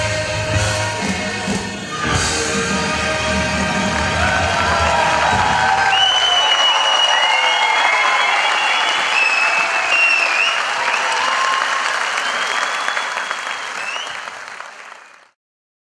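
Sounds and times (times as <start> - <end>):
audience applauding: 3.4 - 15.4.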